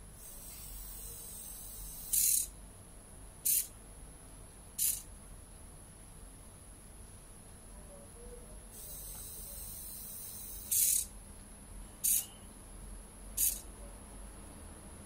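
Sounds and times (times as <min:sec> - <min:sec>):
servo motor whirring: 0:00.2 - 0:02.5, 0:03.5 - 0:03.7, 0:04.8 - 0:05.0, 0:08.8 - 0:11.1, 0:12.0 - 0:12.3, 0:13.4 - 0:13.7.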